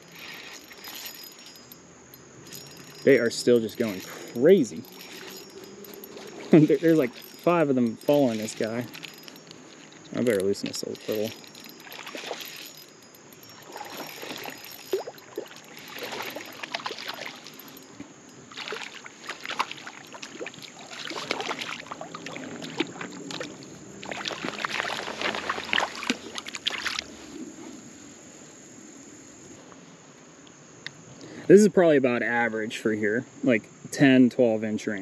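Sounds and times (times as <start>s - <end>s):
fish splashing in water: 11.2s - 17.9s, 18.5s - 27.0s.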